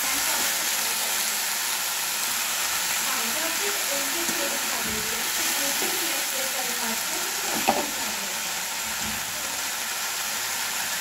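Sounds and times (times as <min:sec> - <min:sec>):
leaves sizzling in hot oil: 0:00.0 - 0:11.0
spatula stirring in pan: 0:03.8 - 0:06.5, 0:07.1 - 0:08.2.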